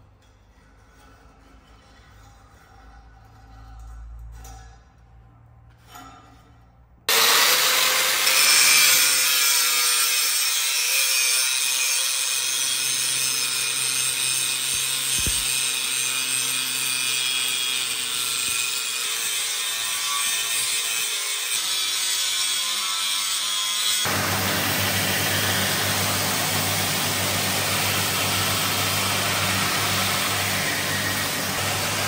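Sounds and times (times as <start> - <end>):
angle grinder grinding steel: 7.1 - 32.0.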